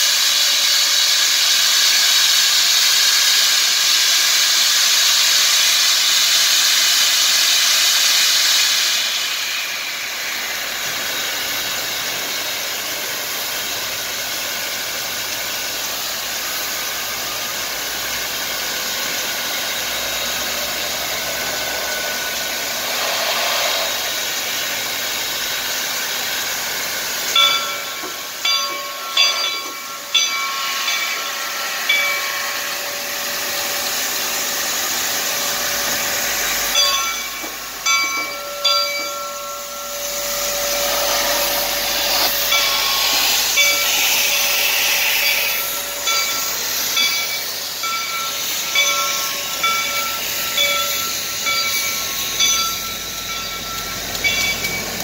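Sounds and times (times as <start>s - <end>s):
steam hissing: 0.0s - 55.0s
locomotive bell ringing: 26.6s - 34.0s, 34.7s - 55.0s.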